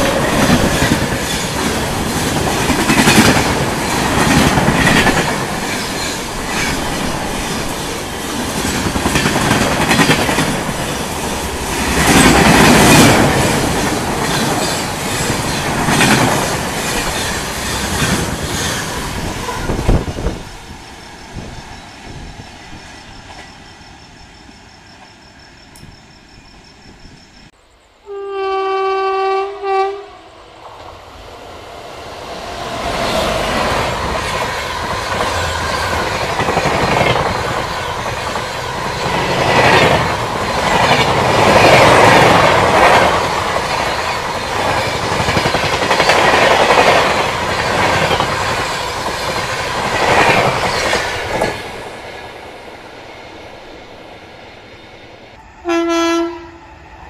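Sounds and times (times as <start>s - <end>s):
train wheels clattering: 0.0s - 26.2s, 32.9s - 52.2s
train rumbling past: 0.0s - 57.0s
train horn blasts: 19.4s - 20.0s, 28.0s - 30.4s, 55.4s - 56.7s.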